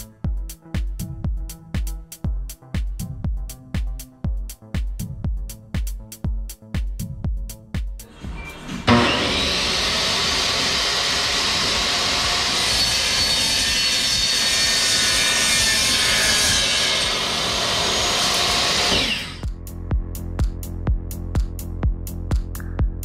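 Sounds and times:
electronic music with beat: 0.0 - 8.5, 19.4 - 23.0
miter saw cutting metal: 8.0 - 19.5.

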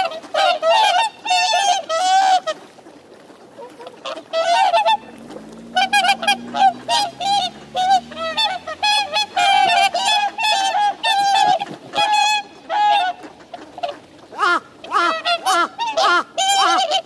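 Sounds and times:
swans honking: 0.0 - 2.6, 3.6 - 17.0
faint low hum: 4.7 - 9.9.

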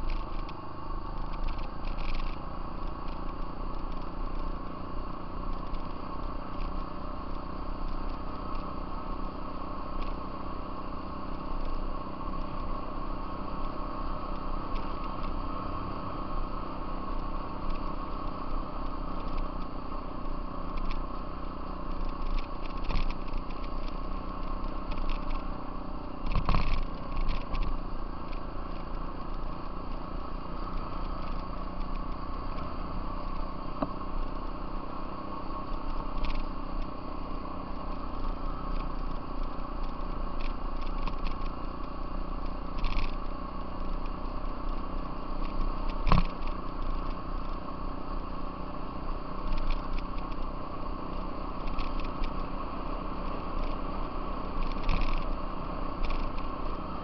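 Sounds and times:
off-road vehicle engine running: 0.0 - 57.0.

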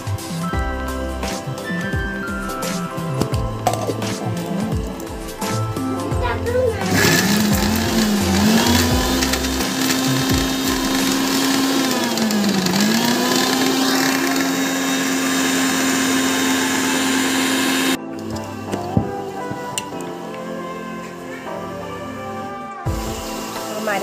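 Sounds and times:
mixer grinder motor whine: 6.8 - 20.4.

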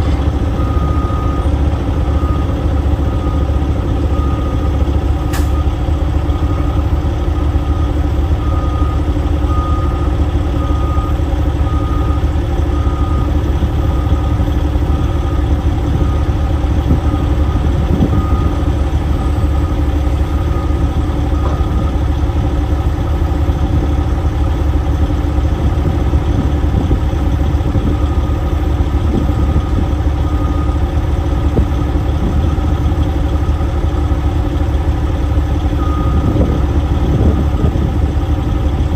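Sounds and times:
diesel engine idling: 0.0 - 38.9
backup alarm beeping: 35.8 - 36.6.

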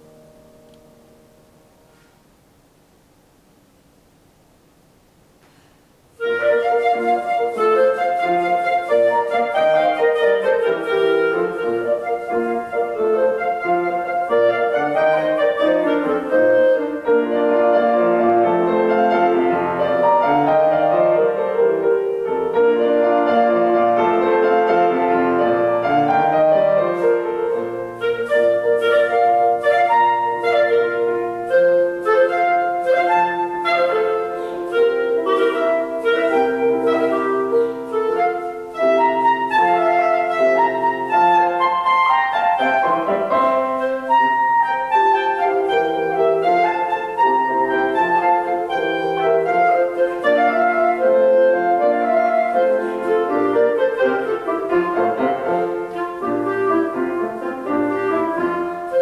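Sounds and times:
clarinet melody: 0.0 - 2.2, 6.1 - 59.0
piano accompaniment: 0.0 - 2.6, 5.5 - 59.0.

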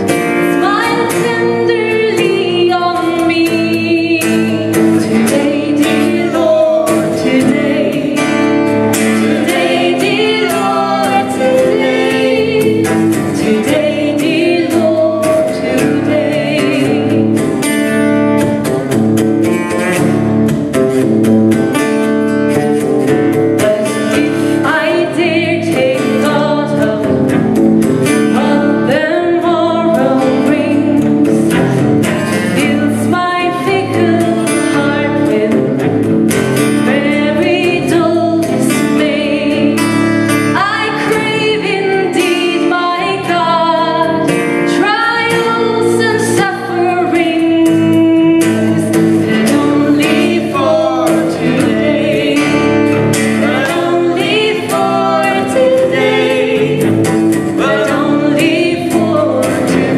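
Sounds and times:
acoustic guitar: 0.0 - 59.9
woman singing: 0.3 - 17.7, 23.4 - 27.4, 28.1 - 31.7, 32.3 - 35.9, 36.6 - 59.9.

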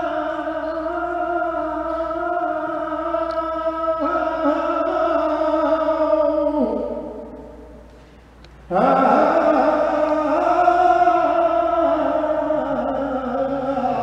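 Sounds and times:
person singing melismatic notes: 0.0 - 7.5.

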